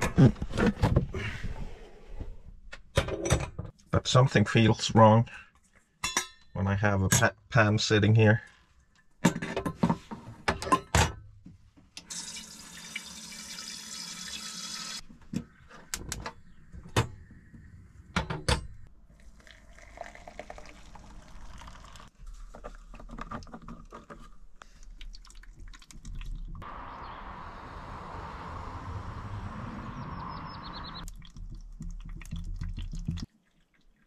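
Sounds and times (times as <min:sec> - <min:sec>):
water running from tap: 0:12.1 - 0:15.0
splashing and scrubbing: 0:31.0 - 0:34.0.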